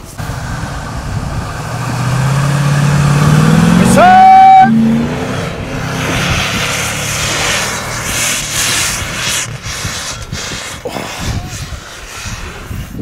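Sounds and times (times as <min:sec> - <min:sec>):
suv engine revving hard: 0:00.2 - 0:11.2
loud high tone: 0:03.7 - 0:05.0.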